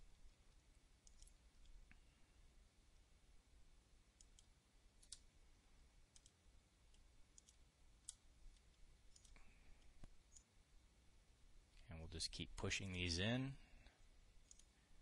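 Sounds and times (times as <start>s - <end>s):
computer mouse clicks: 1.0s - 1.8s, 4.2s - 5.3s, 6.1s - 10.5s, 14.4s - 14.8s.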